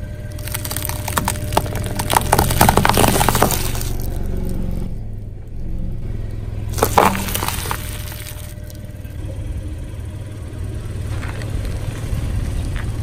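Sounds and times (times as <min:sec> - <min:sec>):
car engine running: 0:00.0 - 0:13.0
tyre crunching hard candies: 0:00.3 - 0:04.9, 0:06.7 - 0:08.9.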